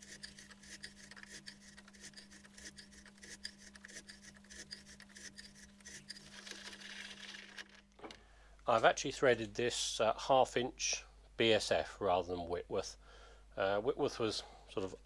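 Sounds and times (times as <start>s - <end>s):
metal scraping and clicking: 0.0s - 7.8s.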